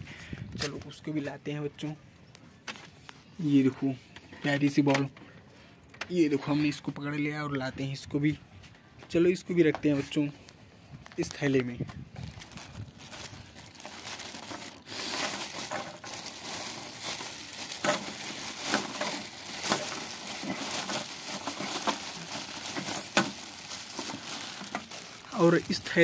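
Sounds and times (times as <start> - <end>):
plastic bag crinkling: 11.0 - 26.0.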